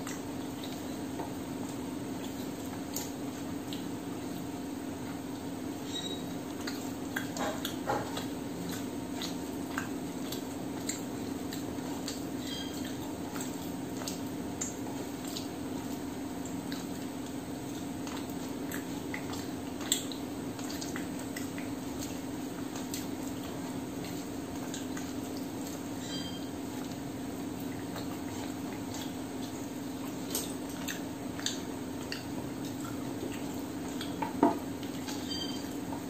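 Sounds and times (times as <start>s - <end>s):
wet chewing noises: 0.0s - 36.0s.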